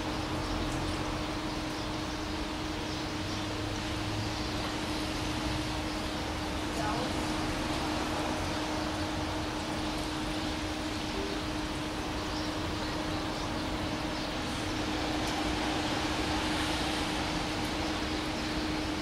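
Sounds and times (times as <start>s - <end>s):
train rushing on the line: 4.0s - 19.0s.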